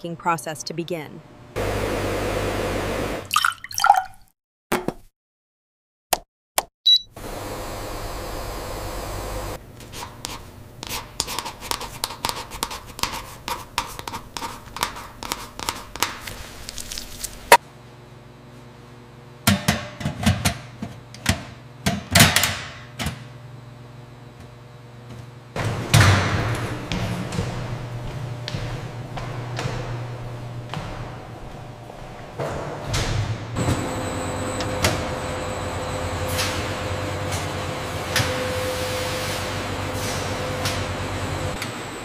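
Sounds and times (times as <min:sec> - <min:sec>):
scratchy writing strokes: 0:09.9 - 0:16.1.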